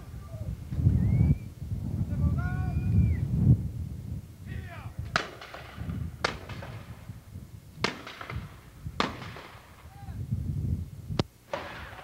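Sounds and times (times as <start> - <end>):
musket shots with echo: 5.1 - 6.9, 7.8 - 9.7, 11.5 - 12.0.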